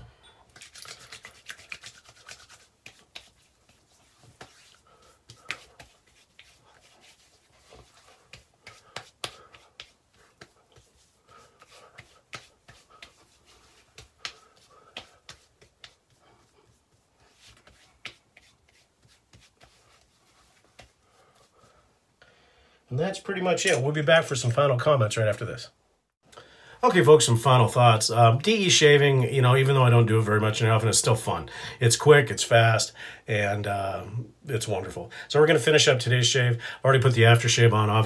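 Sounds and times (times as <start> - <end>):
hands slapping face: 0.5 - 21.0
palms rubbing together: 0.5 - 21.9.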